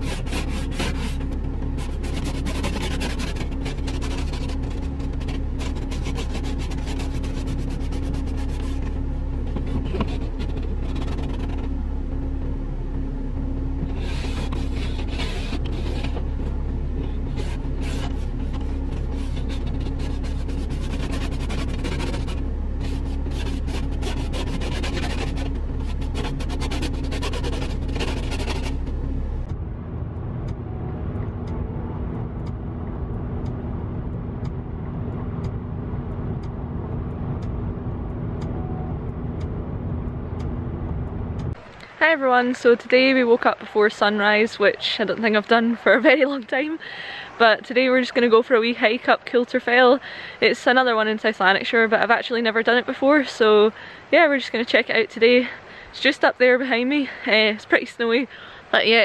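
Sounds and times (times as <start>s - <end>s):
car engine idling: 0.0s - 57.6s
car driving on motorway: 0.0s - 59.0s
ice scraped off windscreen: 17.2s - 28.8s.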